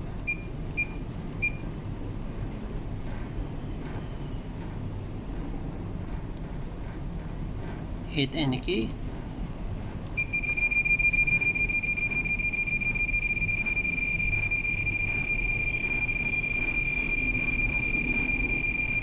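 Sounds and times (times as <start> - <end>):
high-pitched electronic tone: 10.2 - 19.0.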